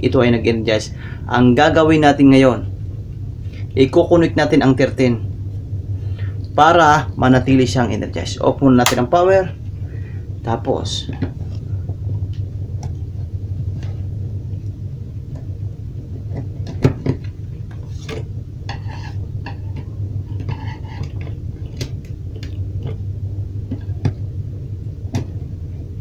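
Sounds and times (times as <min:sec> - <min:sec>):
steady low hum: 0:00.0 - 0:26.0
scratchy rubbing: 0:17.8 - 0:21.8.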